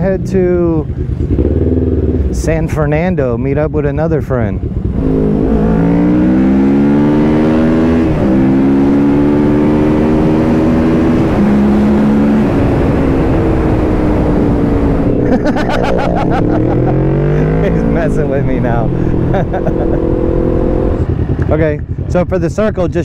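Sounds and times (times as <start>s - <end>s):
motorcycle engine accelerating: 0.0s - 2.5s, 3.9s - 23.0s
wind rushing: 7.4s - 22.1s.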